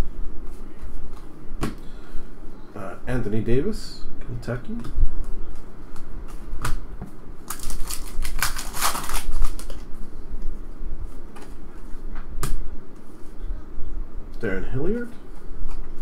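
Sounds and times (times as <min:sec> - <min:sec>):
foil pack tearing and crinkling: 0:07.4 - 0:09.8.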